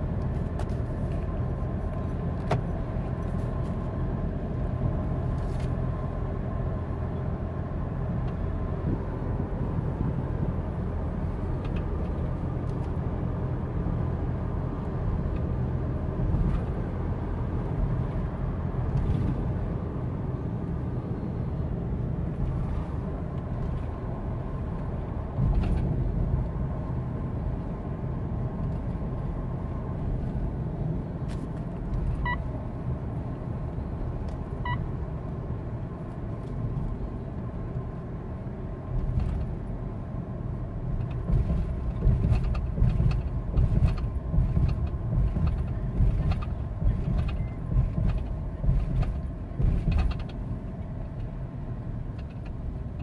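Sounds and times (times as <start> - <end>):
diesel engine cruising: 0.0 - 53.0
tyre and road rumble: 40.6 - 53.0.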